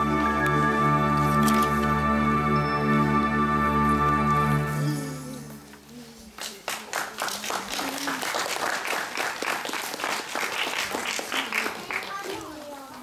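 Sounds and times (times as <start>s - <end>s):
music: 0.0s - 5.8s
audience applauding: 6.3s - 12.7s.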